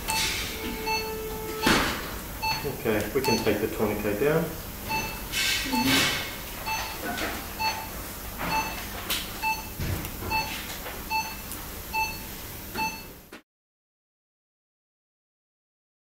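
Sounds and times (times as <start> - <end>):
patient monitor beeping: 0.0 - 4.2, 4.9 - 13.2.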